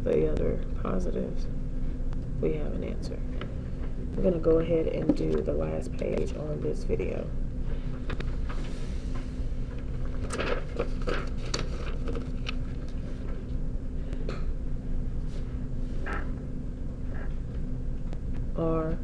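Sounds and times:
paper sheets being handled: 8.0s - 13.5s
paper crinkles and taps: 10.1s - 13.4s.

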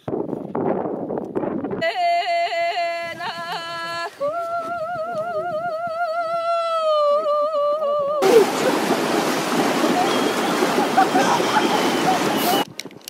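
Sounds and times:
woman singing unaccompanied: 1.8s - 8.2s.

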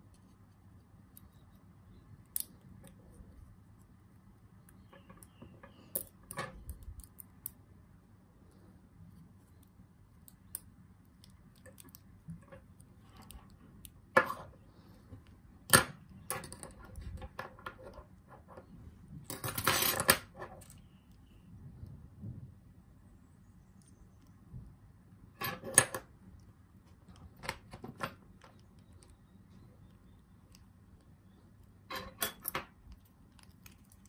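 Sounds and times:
metal lock parts clicking: 31.8s - 34.0s.

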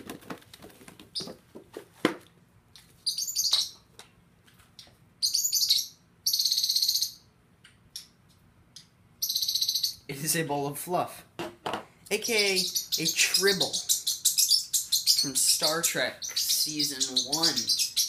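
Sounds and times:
small birds chirping: 3.0s - 3.9s, 4.8s - 7.3s, 8.8s - 10.2s, 12.1s - 18.0s.

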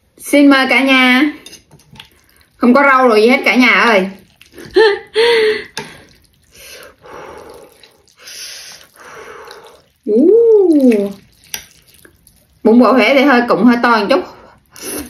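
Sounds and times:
person making vocal sounds: 10.0s - 11.2s.

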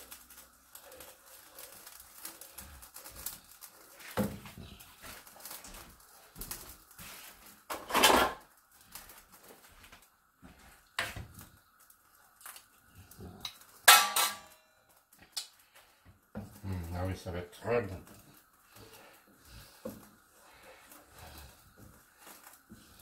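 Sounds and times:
kitchen clatter: 7.6s - 8.5s, 13.4s - 14.7s.

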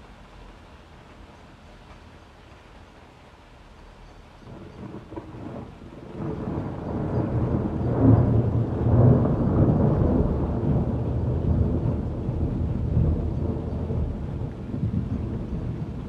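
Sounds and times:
rolling thunder: 4.4s - 16.0s.

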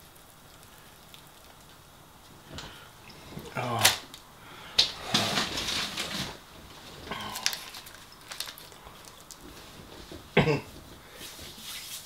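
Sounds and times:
foil and paper crinkling: 5.1s - 9.8s.

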